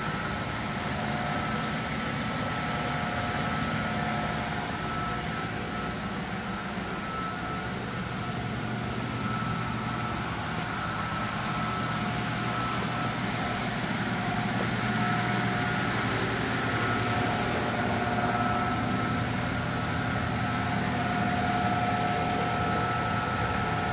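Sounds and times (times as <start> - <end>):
faint whining tones: 0.0 - 23.9
mechanical hum and hiss: 0.0 - 23.9.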